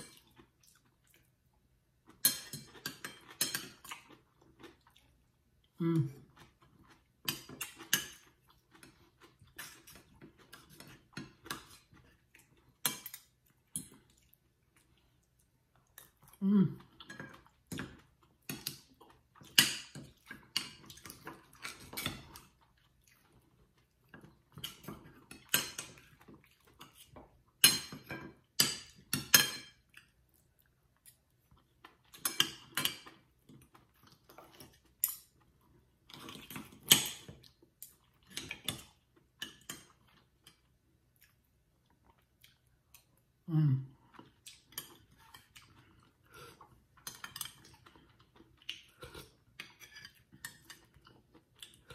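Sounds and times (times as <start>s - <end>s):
cutlery clinking on a soup bowl: 2.1s - 4.2s, 6.4s - 14.0s, 17.0s - 22.6s, 24.1s - 30.0s, 31.9s - 33.2s, 34.5s - 35.4s, 36.1s - 37.4s, 38.3s - 40.7s, 44.6s - 45.9s, 47.0s - 51.0s
person humming: 5.8s - 6.2s, 16.4s - 16.8s, 43.5s - 43.9s.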